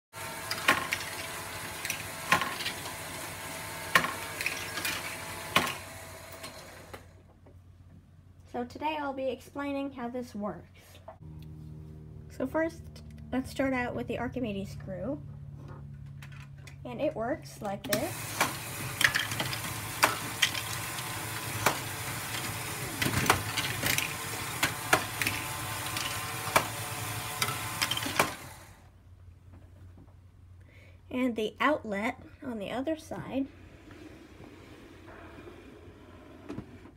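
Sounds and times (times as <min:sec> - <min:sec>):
motors and gears whirring: 0:00.1 - 0:07.3, 0:17.7 - 0:29.0
plastic balls rattling: 0:18.4 - 0:28.5.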